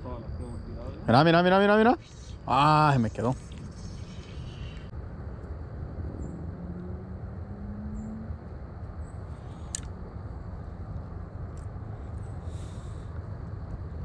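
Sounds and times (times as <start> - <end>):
fishing rod cast click: 9.7 - 10.0.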